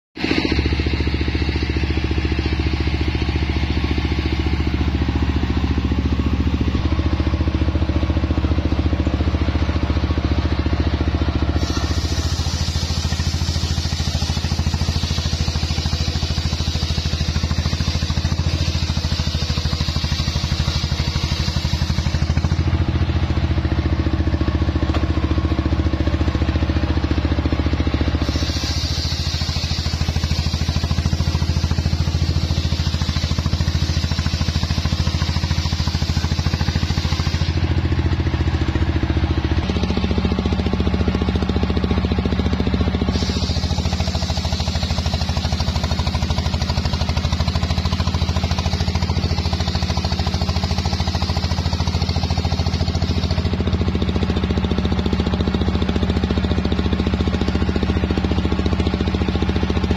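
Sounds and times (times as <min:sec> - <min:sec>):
sawmill engine running: 0:00.2 - 0:59.9
circular blade cutting log: 0:11.4 - 0:22.8, 0:28.2 - 0:37.8, 0:43.1 - 0:46.9.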